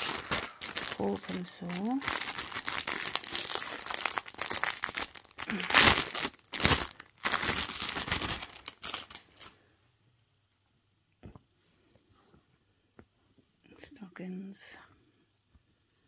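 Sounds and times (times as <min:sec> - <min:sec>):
plastic bags crinkling: 0:00.0 - 0:09.6.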